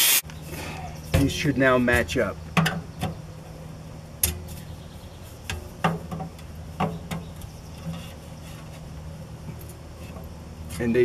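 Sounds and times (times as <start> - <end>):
steady low hum: 0.2 - 11.0
metal pipe knocks and clanks: 2.6 - 3.2, 5.5 - 8.0.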